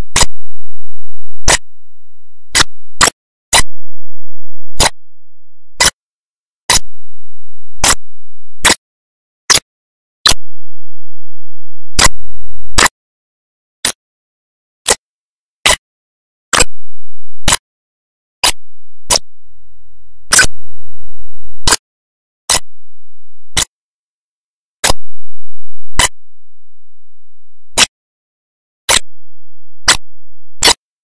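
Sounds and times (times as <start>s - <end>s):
faint low hum: 3.6s - 5.8s, 24.9s - 27.8s.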